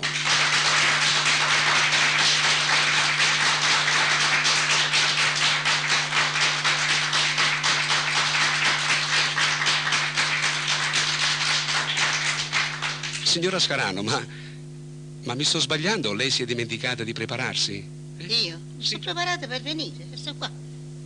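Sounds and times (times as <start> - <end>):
audience applauding: 0.0 - 13.7
steady low hum: 0.0 - 21.0.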